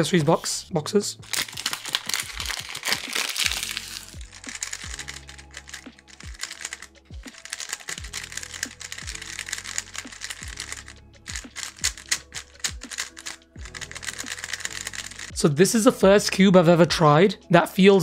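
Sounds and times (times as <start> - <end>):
speed cube plastic clacking: 1.4 - 15.3
background music with beat: 1.8 - 17.5.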